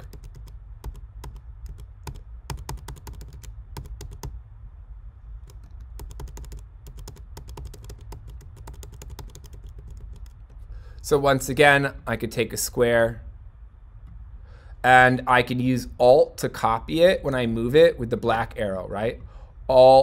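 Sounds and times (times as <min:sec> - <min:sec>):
computer keyboard keys clicking: 0:00.0 - 0:04.4, 0:05.4 - 0:10.6
low steady hum: 0:00.0 - 0:20.0.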